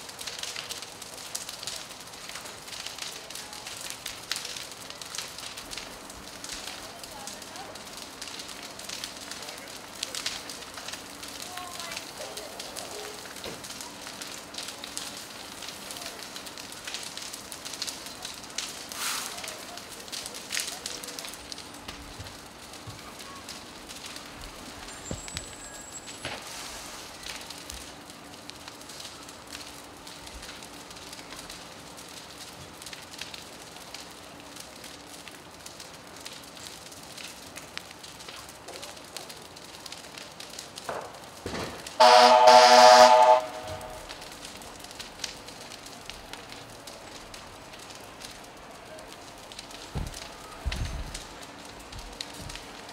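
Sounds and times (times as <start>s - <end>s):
fire hissing and crackling: 0.0s - 52.9s
flames rushing: 0.0s - 52.9s.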